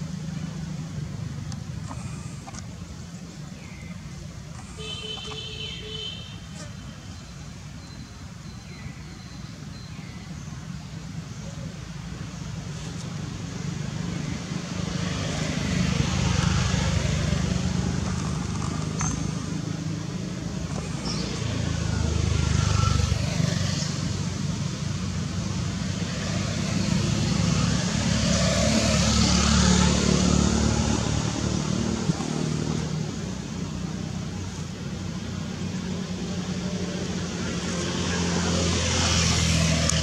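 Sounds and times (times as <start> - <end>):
road traffic passing: 0.0 - 40.0.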